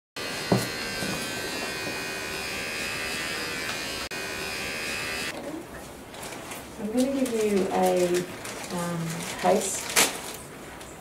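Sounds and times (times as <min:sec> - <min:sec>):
small electric motor buzzing: 0:00.2 - 0:05.4.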